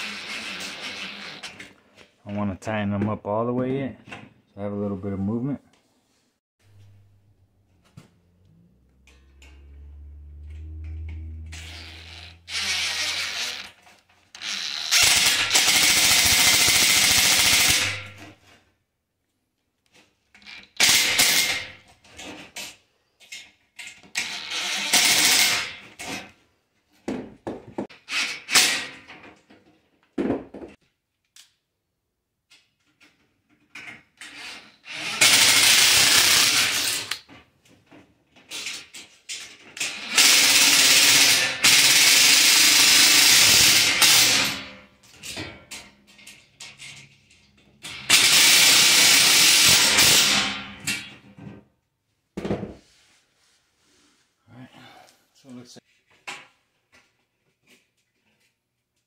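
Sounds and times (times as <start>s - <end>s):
impact driver driving screws: 11.5s - 18.3s, 34.2s - 37.2s, 39.8s - 44.7s, 47.9s - 50.6s.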